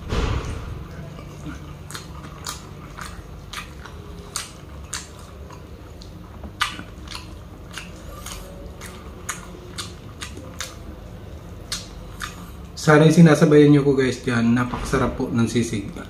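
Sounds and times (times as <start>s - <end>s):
close-miked chewing: 0.9s - 12.9s.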